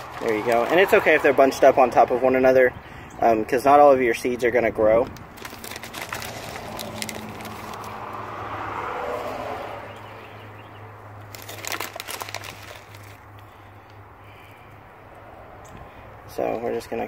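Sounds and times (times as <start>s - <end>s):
vehicle passing: 0.0s - 2.9s, 5.3s - 17.0s
low traffic hum: 0.0s - 17.0s
fingers handling seeds and soil: 4.9s - 8.0s, 11.2s - 13.5s.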